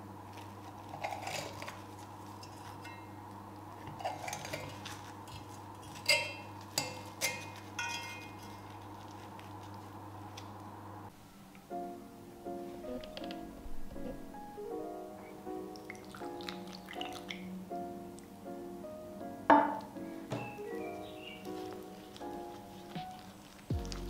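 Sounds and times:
cutlery clinking on skillet: 4.0s - 8.6s.

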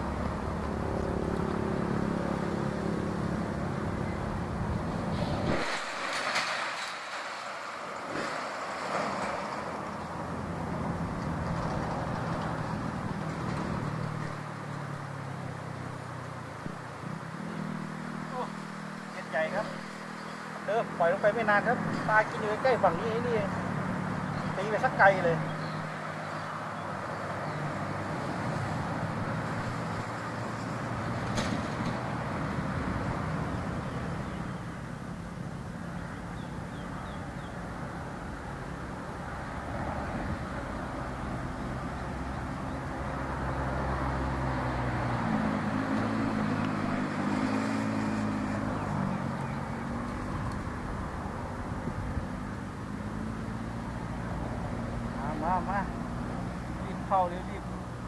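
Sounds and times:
motor engine humming: 0.0s - 5.2s
open-air background noise: 0.0s - 58.0s
road traffic rumble: 0.0s - 58.0s.

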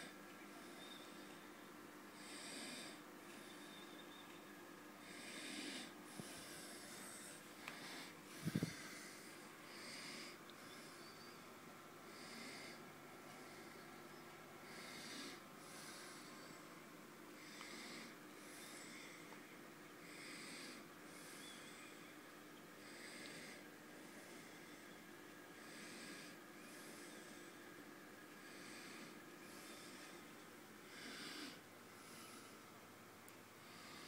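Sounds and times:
faint steady hum: 0.0s - 34.0s
breathing close to microphone: 5.0s - 11.2s.

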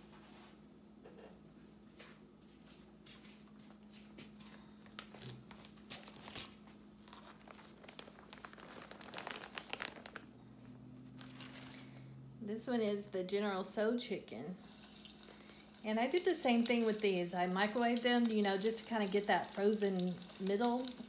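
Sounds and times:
faint steady hum: 0.0s - 21.0s
paper crinkling and clicking: 4.9s - 10.3s.

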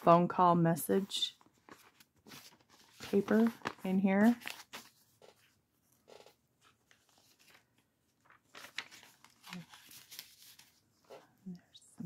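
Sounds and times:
paper pages rustling: 1.0s - 11.4s.

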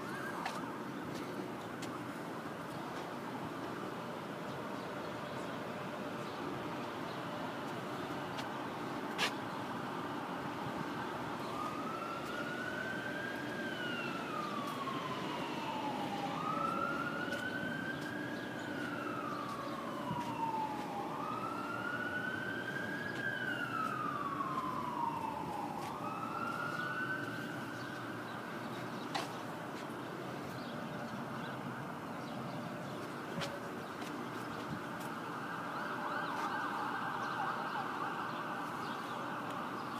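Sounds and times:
emergency siren wailing: 0.0s - 1.5s, 9.7s - 39.9s
background noise: 0.0s - 39.9s.

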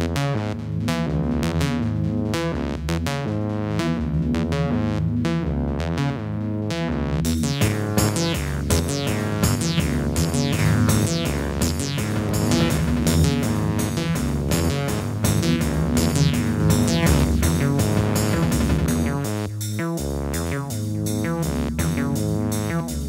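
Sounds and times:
synthesizer notes: 6.8s - 23.0s
drum machine beat: 7.3s - 23.0s.

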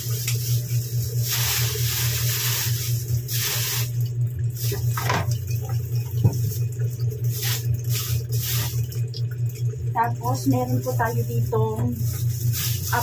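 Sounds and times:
plastic bags rustling: 0.0s - 4.0s, 6.4s - 9.1s, 10.3s - 13.0s
steady low hum: 0.0s - 13.0s.

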